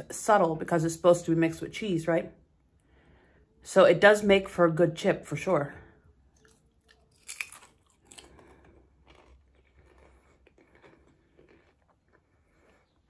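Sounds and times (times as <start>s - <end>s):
soft chewing: 6.0s - 13.0s
potato chip crunch: 6.4s - 13.0s.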